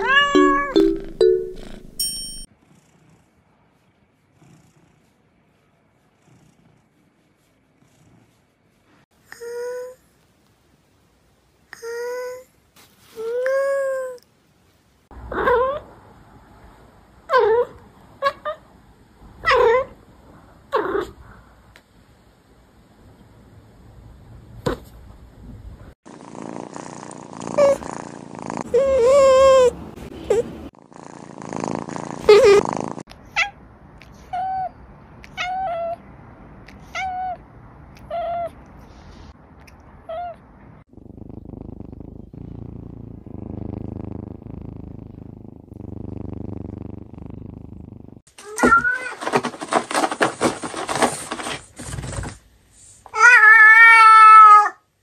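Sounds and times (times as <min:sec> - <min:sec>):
cat meowing: 0:00.0 - 0:00.8, 0:53.2 - 0:54.8
cat purring: 0:02.6 - 0:09.0, 0:26.1 - 0:29.7, 0:30.3 - 0:33.1, 0:40.8 - 0:48.3
cat scratching cardboard: 0:48.4 - 0:52.4.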